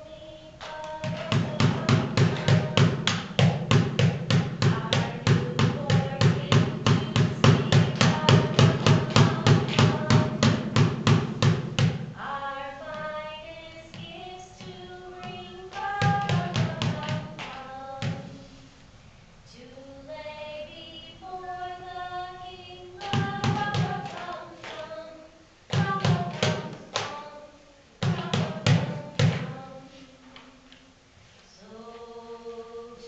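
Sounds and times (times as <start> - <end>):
children singing: 0.0 - 11.4
steady drum beat: 0.9 - 12.2.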